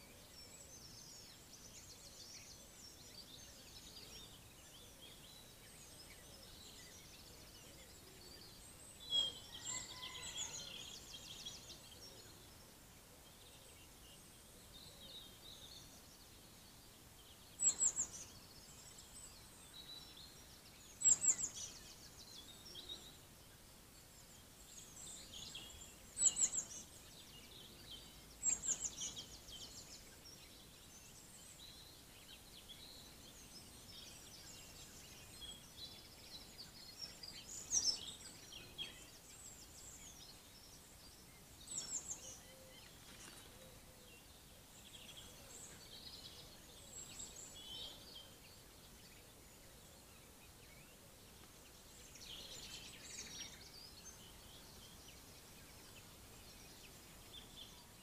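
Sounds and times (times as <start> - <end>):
birds twittering: 0.0 - 12.6, 13.3 - 23.6
songbird descending song: 9.0 - 10.4.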